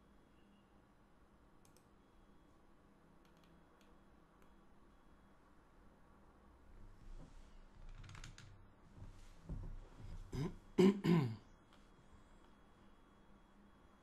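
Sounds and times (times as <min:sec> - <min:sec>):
faint clicks: 0:01.6 - 0:01.9
man clearing throat: 0:10.3 - 0:11.4.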